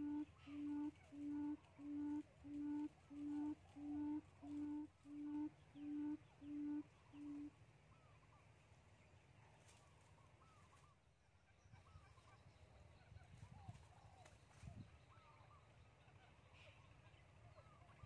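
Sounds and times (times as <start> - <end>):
low hooting call: 0.0 - 7.6
faint bird chirps: 0.0 - 18.0.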